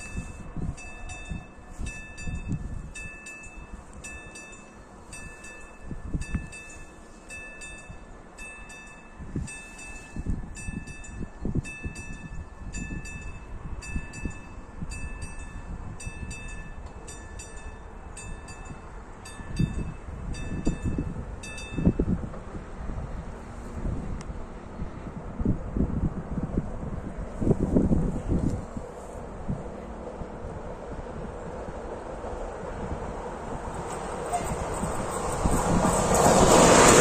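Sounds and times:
level crossing warning bell: 0.0 - 22.2
wind buffeting microphone: 0.0 - 37.0.

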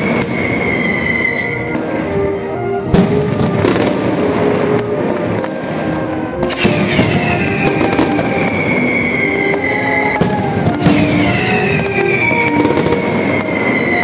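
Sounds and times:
rattle of firecrackers: 0.0 - 2.0, 3.0 - 14.0
descending shrill whistles: 6.9 - 14.0.

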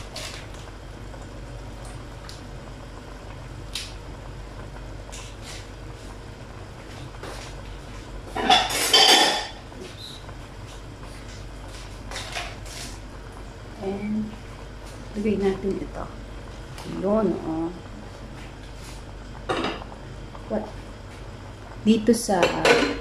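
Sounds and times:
dishes and utensils clattering: 8.4 - 9.6.

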